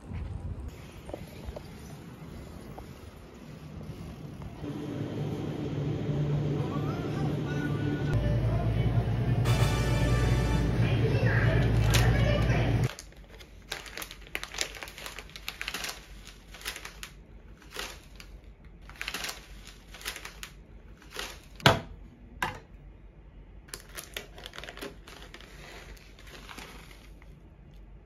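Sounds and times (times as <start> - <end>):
plastic packet crinkling: 11.6 - 21.6, 23.7 - 27.4.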